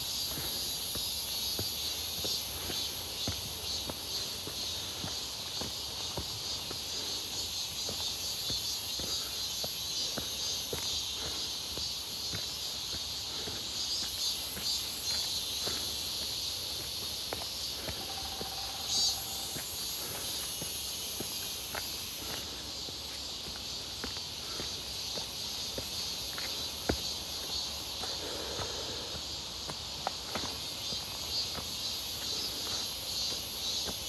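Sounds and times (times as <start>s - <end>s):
cicadas buzzing: 0.0s - 34.0s
loud high cicada buzz: 0.0s - 34.0s
footsteps on dry leaves: 14.2s - 26.7s.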